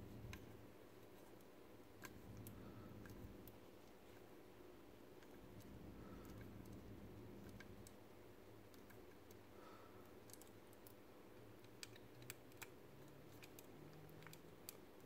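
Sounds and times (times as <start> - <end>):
screwdriver clicking on tiny screws: 11.6 - 14.9.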